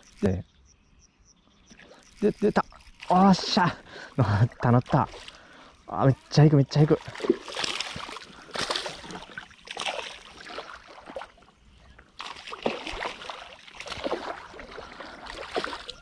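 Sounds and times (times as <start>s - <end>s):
fish thrashing water splashing: 7.0s - 11.5s, 12.2s - 16.0s.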